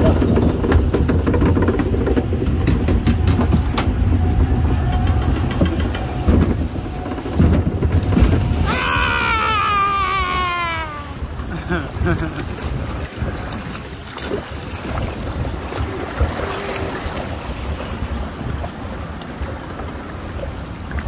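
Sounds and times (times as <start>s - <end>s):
train car rumbling and clattering: 0.0s - 21.0s.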